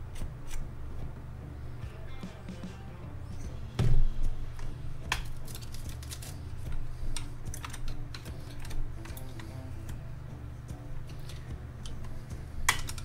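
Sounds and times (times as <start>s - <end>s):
heavy thump: 3.8s - 4.2s.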